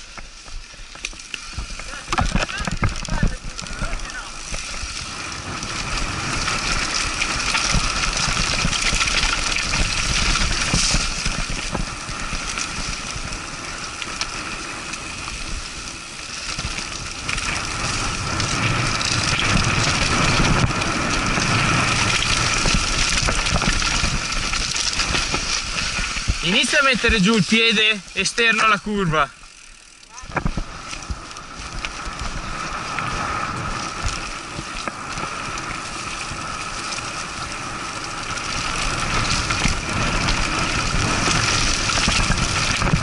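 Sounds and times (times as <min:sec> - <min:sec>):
bike tyres on dirt: 0:00.0 - 0:43.0
bike rattles and knocks: 0:00.9 - 0:14.4, 0:16.4 - 0:27.4, 0:38.2 - 0:43.0
wind rush: 0:16.4 - 0:27.7, 0:30.2 - 0:43.0.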